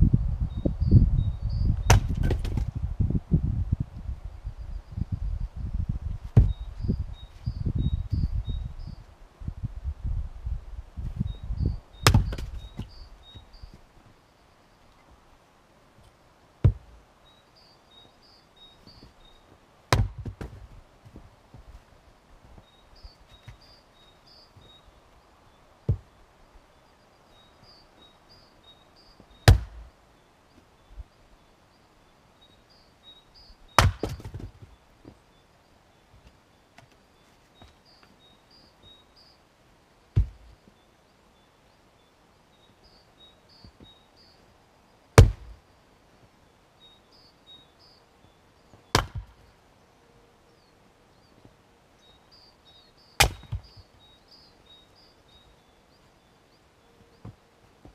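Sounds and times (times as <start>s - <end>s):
axe striking logs: 1.8s - 2.8s, 6.3s - 6.6s, 12.0s - 13.0s, 16.6s - 17.0s, 19.9s - 20.7s, 25.9s - 26.1s, 29.4s - 29.9s, 33.8s - 34.7s, 40.1s - 40.5s, 45.2s - 45.6s, 48.9s - 49.4s, 53.2s - 53.8s.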